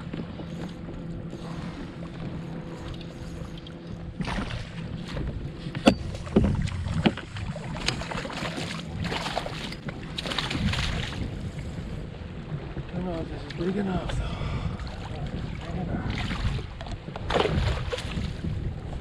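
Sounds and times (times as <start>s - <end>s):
fish thrashing and splashing: 6.2s - 11.2s.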